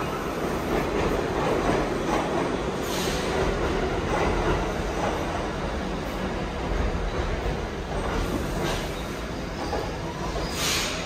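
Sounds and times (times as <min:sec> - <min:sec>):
subway train wheels rumbling: 0:00.0 - 0:11.0
brief high-pitched hiss: 0:10.5 - 0:11.0.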